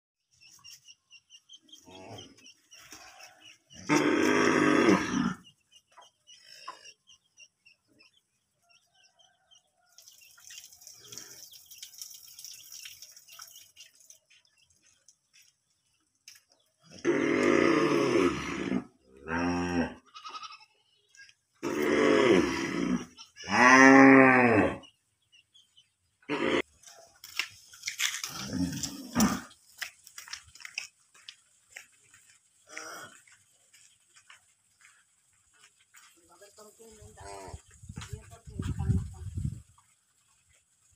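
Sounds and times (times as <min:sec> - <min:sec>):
cow mooing: 0:03.9 - 0:05.4, 0:17.0 - 0:20.1, 0:21.6 - 0:24.8.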